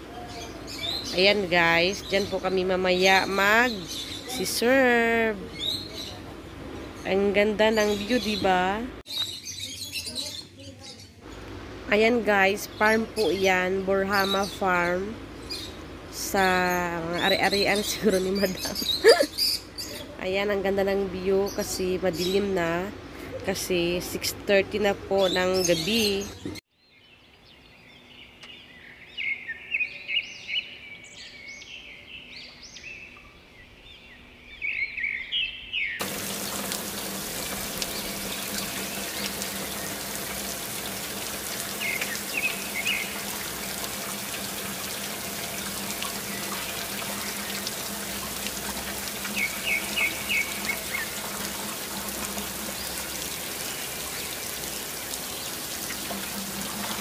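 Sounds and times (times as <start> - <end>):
small birds chirping: 0.0 - 20.6, 25.1 - 57.0
water falling in fountain: 36.0 - 57.0.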